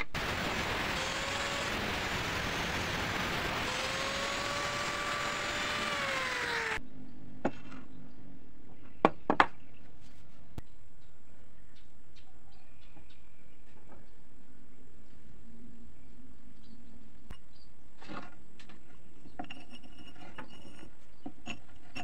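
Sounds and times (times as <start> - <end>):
angle grinder cutting metal: 0.0 - 6.8.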